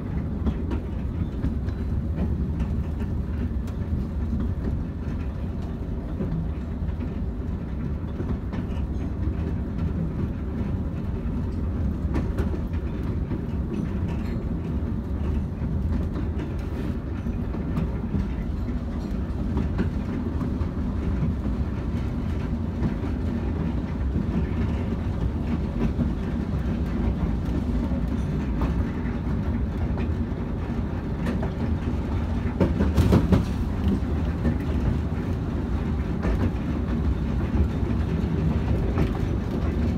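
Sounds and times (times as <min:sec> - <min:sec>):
train wheels rumbling on rail: 0:00.0 - 0:39.9.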